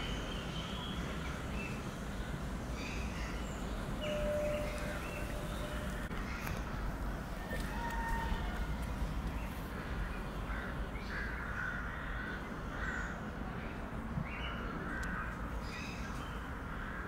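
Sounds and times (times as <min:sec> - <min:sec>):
bird calling: 0:00.0 - 0:06.7.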